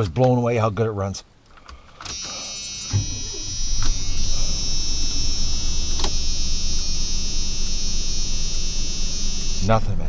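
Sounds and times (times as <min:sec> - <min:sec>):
thin high whine: 0:02.1 - 0:10.0
pickup engine idling: 0:02.2 - 0:10.0.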